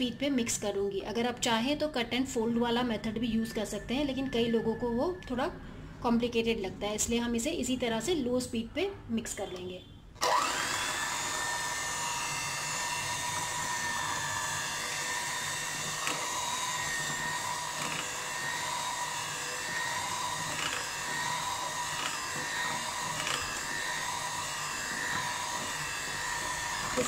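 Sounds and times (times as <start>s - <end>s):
electric hand mixer whine: 10.2s - 27.0s.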